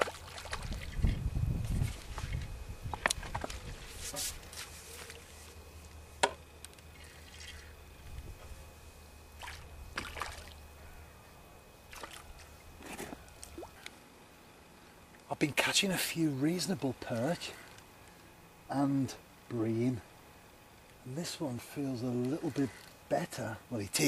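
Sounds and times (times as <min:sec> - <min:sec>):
water splashes and drips: 0:00.0 - 0:01.1, 0:09.4 - 0:10.6, 0:11.9 - 0:12.2
low steady rumble: 0:00.0 - 0:22.4.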